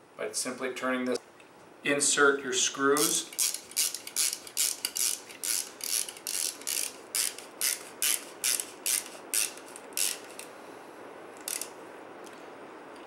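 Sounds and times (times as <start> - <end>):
ratchet handle clicking: 2.9 - 10.5, 11.4 - 11.8.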